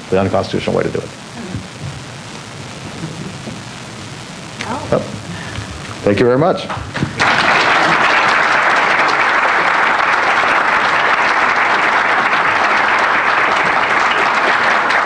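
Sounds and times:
crowd applauding: 0:06.6 - 0:15.0.

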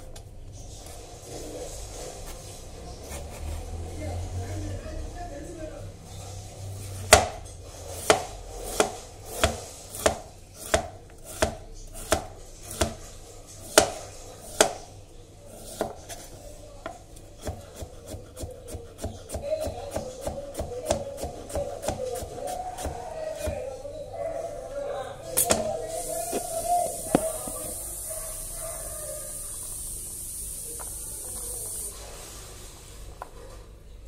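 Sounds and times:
knife chopping on cutting board: 0:07.1 - 0:07.4, 0:08.0 - 0:14.9, 0:15.6 - 0:16.2, 0:17.4 - 0:23.7.

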